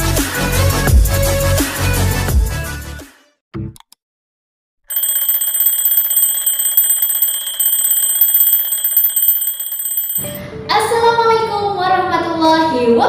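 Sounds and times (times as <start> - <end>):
alarm clock bells ringing: 4.9 - 10.4.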